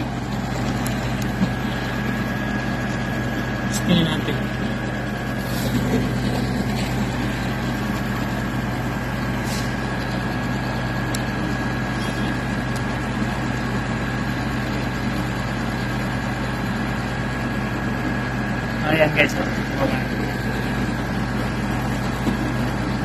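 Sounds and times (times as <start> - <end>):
diesel engine idling: 0.0 - 23.0
thin steady whine: 0.0 - 23.0.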